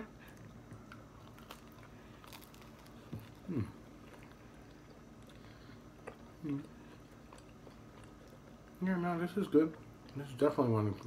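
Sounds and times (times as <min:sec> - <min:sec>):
chewing and biting pizza: 0:00.3 - 0:08.8
crisp crust crunching: 0:00.9 - 0:05.4.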